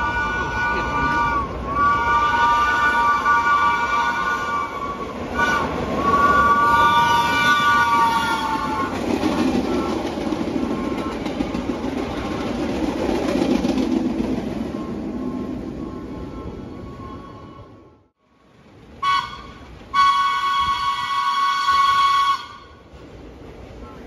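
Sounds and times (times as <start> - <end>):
subway train horn: 0.0 - 11.4, 19.0 - 23.0
train wheels rumbling on rails: 0.0 - 24.0.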